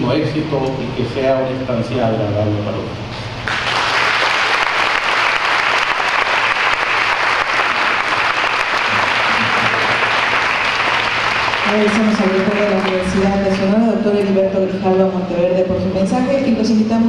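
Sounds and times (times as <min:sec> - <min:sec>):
large audience applauding: 0:03.4 - 0:14.4.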